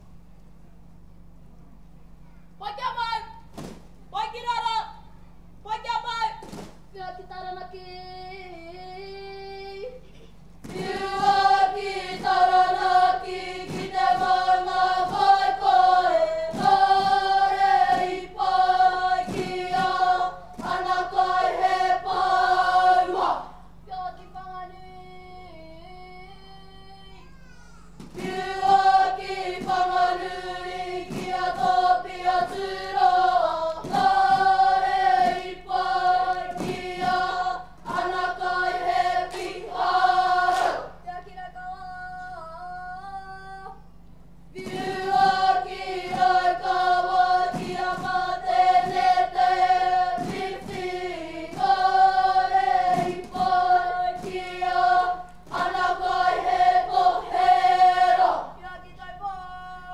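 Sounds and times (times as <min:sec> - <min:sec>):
children singing in unison: 0:10.7 - 0:23.6, 0:28.2 - 0:41.0, 0:44.6 - 0:58.6.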